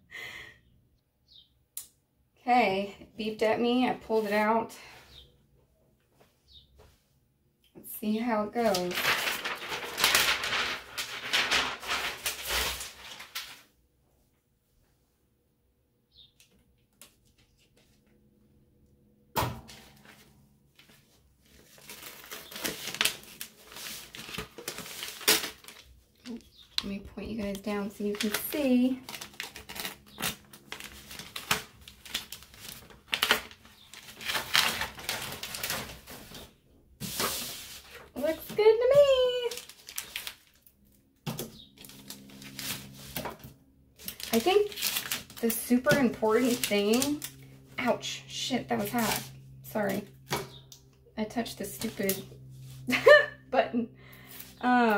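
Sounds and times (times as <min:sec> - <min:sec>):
paper sheets rustling and crinkling: 0:08.5 - 0:13.7, 0:19.7 - 0:40.7, 0:41.3 - 0:50.5, 0:51.6 - 0:53.0.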